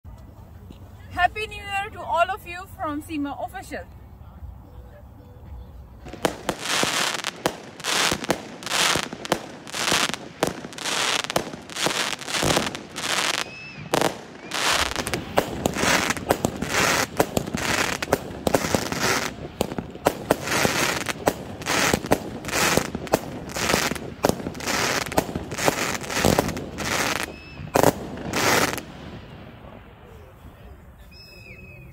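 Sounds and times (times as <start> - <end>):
fireworks bangs: 6.0 - 30.8.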